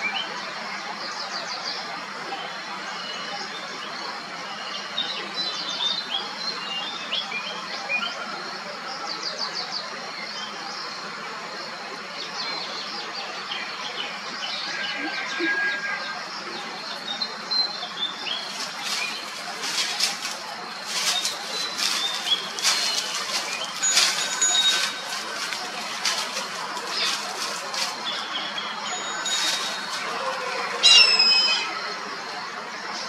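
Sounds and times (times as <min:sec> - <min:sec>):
small birds chirping and trilling: 0:11.6 - 0:33.0
background hiss: 0:16.2 - 0:32.1.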